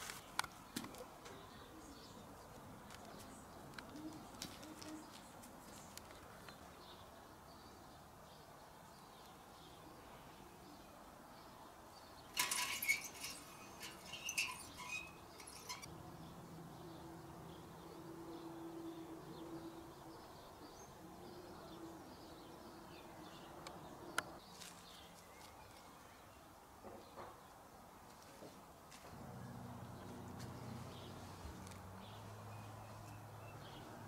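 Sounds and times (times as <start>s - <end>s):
rustling in plants: 0.0s - 1.1s, 2.4s - 6.8s, 12.3s - 15.9s, 24.4s - 26.0s, 30.1s - 33.3s.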